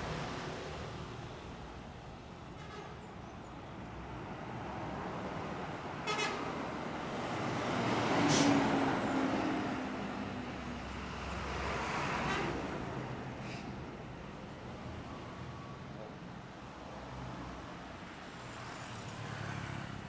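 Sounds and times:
bus and heavy traffic passing: 0:00.0 - 0:20.0.

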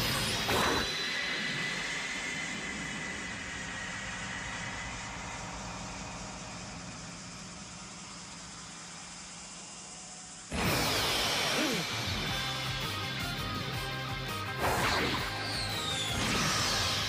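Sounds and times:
engine-like rumble with hiss: 0:00.0 - 0:17.0
loud strike with whoosh: 0:10.5 - 0:13.2.

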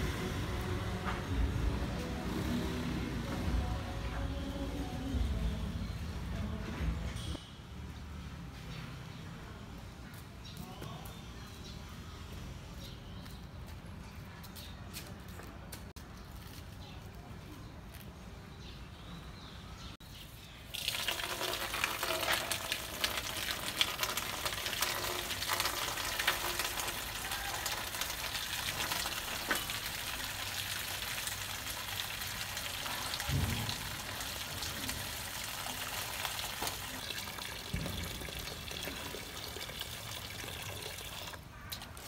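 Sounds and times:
tap water splashing into basin: 0:20.7 - 0:42.0.

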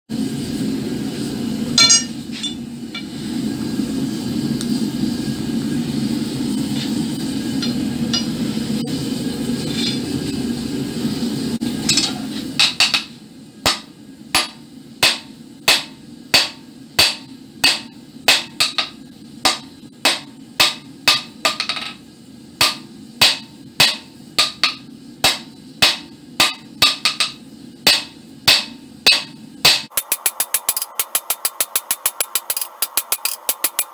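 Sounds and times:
hammer striking iron on anvil: 0:01.8 - 0:03.1, 0:07.6 - 0:08.4, 0:11.9 - 0:13.1, 0:13.7 - 0:22.0, 0:22.6 - 0:33.9.

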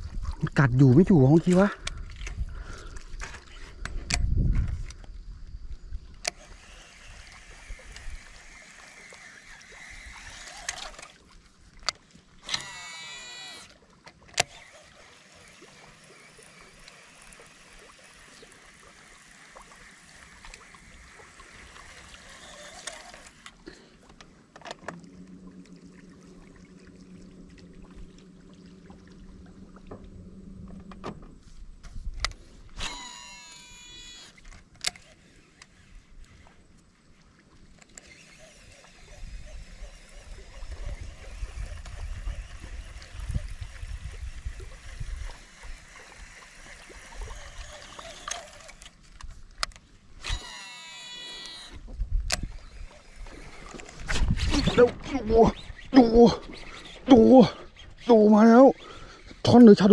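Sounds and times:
fishing reel spool whirring: 0:00.5 - 0:31.2, 0:32.1 - 0:59.9.

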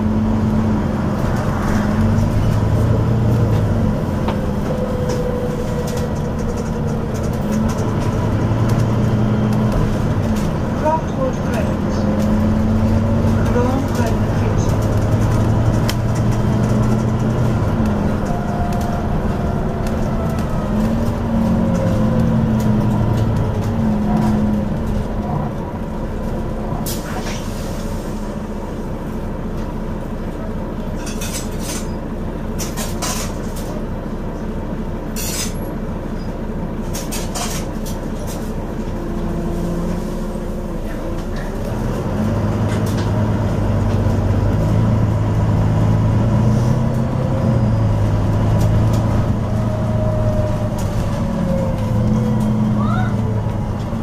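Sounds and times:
bus diesel engine droning: 0:00.0 - 0:54.0.

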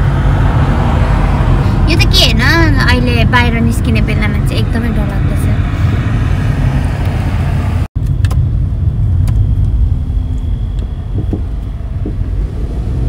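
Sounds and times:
car interior road rumble: 0:00.0 - 0:13.0.

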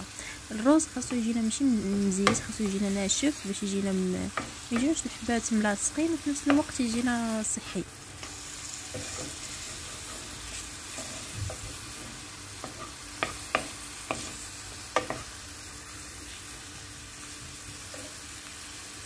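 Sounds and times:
onion sizzling in oil: 0:00.0 - 0:19.0
spatula knocking on pan: 0:02.2 - 0:02.8, 0:04.3 - 0:05.0, 0:06.4 - 0:06.7, 0:11.0 - 0:15.3.

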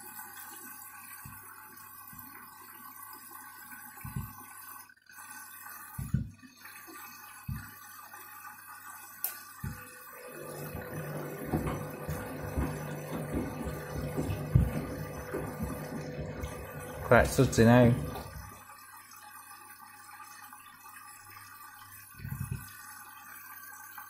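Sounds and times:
washing machine motor humming: 0:04.0 - 0:04.4, 0:09.6 - 0:18.6
shoes thudding in drum: 0:11.0 - 0:16.0.

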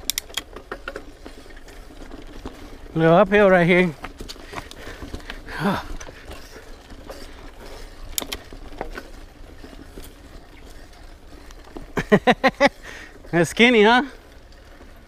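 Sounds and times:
bicycle tyre and drivetrain noise: 0:00.0 - 0:15.0
sharp clicks and rattles: 0:00.0 - 0:15.0.

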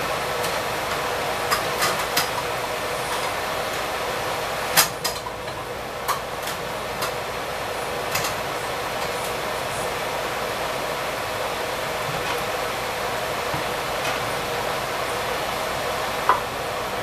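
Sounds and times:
oil sizzling with pops and crackles: 0:00.1 - 0:09.5.

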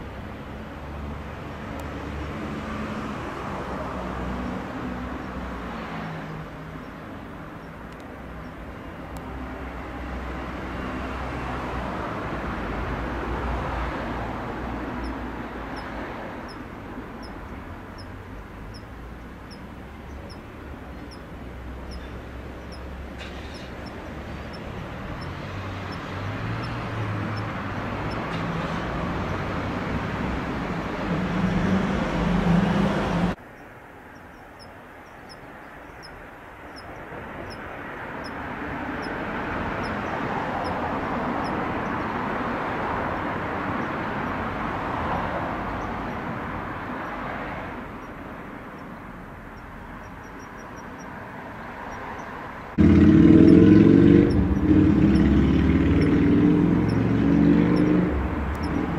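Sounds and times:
steady rush of background noise: 0:00.0 - 0:58.9
cricket ticking: 0:05.8 - 0:09.3, 0:12.3 - 0:30.3, 0:33.4 - 0:58.9.

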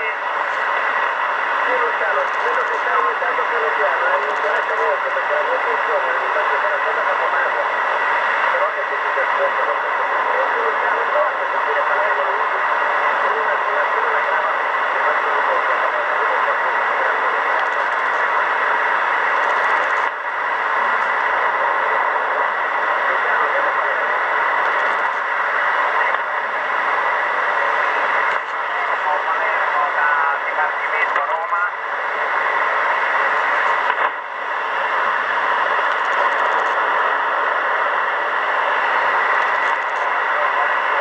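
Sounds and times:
radio static hiss: 0:00.0 - 0:41.0.

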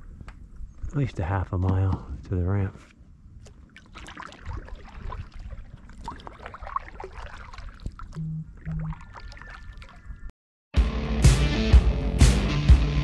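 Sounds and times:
water trickling along hull: 0:03.3 - 0:10.3
small water splashes: 0:03.4 - 0:10.2.

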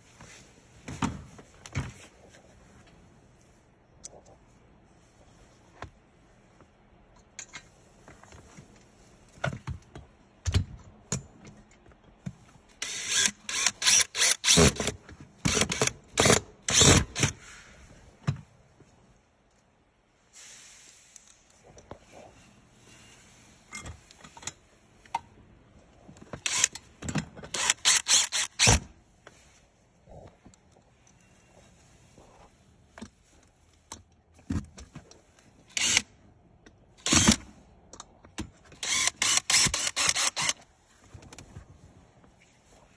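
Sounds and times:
cordless drill driving screws: 0:12.8 - 0:14.9, 0:15.5 - 0:17.4, 0:26.4 - 0:26.8, 0:27.5 - 0:28.8, 0:35.7 - 0:36.1, 0:37.0 - 0:37.4, 0:38.8 - 0:40.6.

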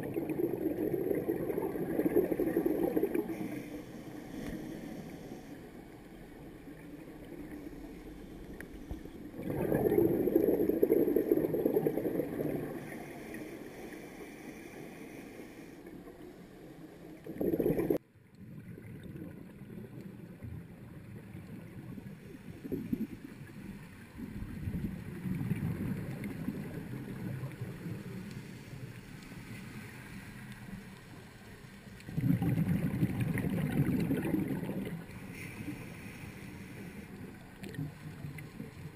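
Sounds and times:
gurgling rushes of exhaled bubbles: 0:00.0 - 0:03.5, 0:08.9 - 0:13.0, 0:17.2 - 0:19.9, 0:24.2 - 0:28.0, 0:32.0 - 0:35.2
muffled underwater rumble: 0:00.0 - 0:38.9.

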